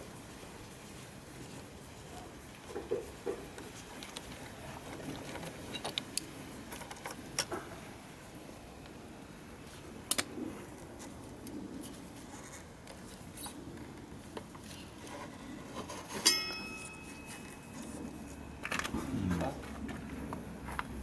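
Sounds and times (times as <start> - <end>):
small handling clicks and rustles: 2.5 - 7.8
metal clinking on metal: 16.2 - 18.9.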